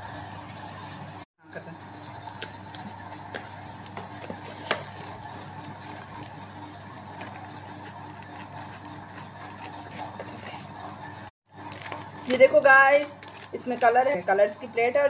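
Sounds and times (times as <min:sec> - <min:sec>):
packing tape ripping: 0:11.5 - 0:13.9.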